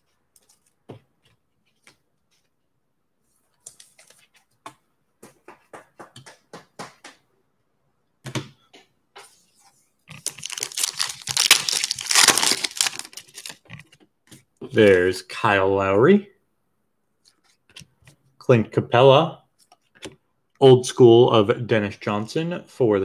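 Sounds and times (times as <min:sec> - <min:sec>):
card pack wrapper crinkling: 0:10.1 - 0:13.9.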